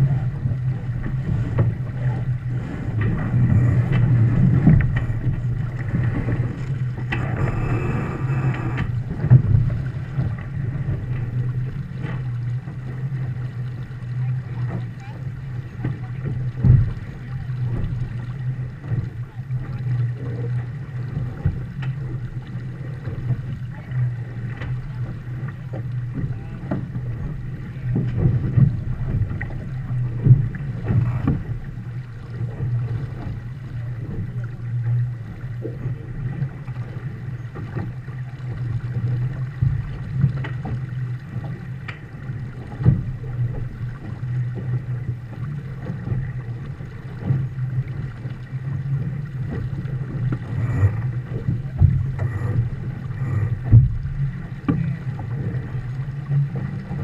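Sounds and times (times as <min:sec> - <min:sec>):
wind on microphone: 0:00.0 - 0:19.4, 0:26.2 - 0:57.0
water rushing along a hull: 0:00.0 - 0:57.0
waves knocking against hull: 0:00.0 - 0:57.0.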